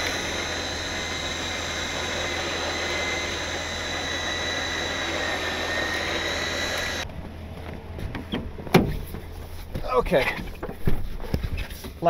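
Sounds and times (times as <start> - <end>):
electric winch whining: 0.0 - 8.6.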